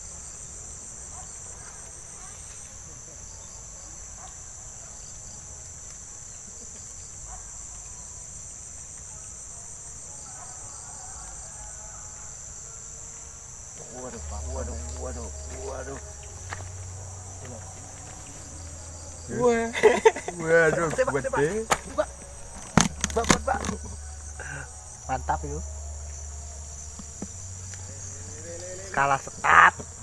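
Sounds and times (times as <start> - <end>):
insects droning: 0.0 - 30.0
low rumble: 13.8 - 28.6.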